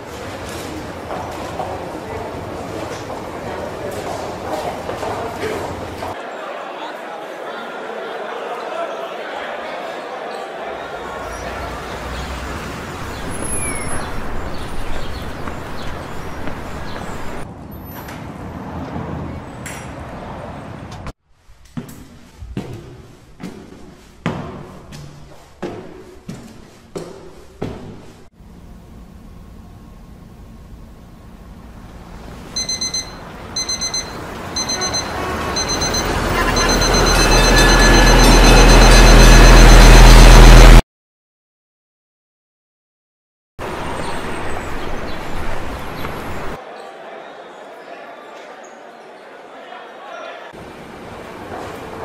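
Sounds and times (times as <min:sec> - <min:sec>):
digital alarm beeping: 0:32.6 - 0:40.8.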